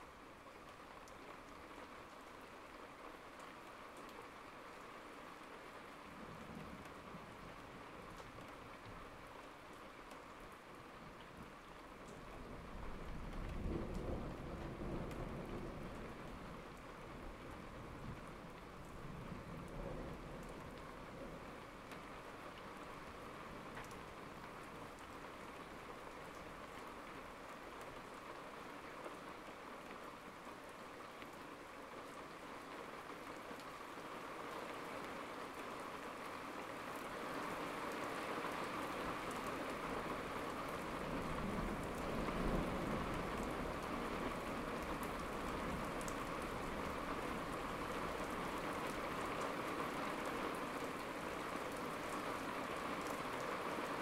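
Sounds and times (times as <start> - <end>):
steady rain falling: 0.0 - 54.0
low rumble of thunder: 12.3 - 22.4, 40.8 - 48.5.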